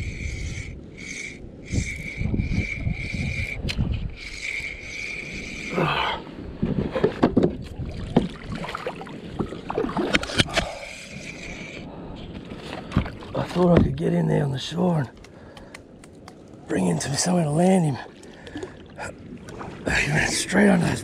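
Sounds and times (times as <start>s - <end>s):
knocks and scrapes on kayak: 6.6s - 8.4s, 9.4s - 10.7s.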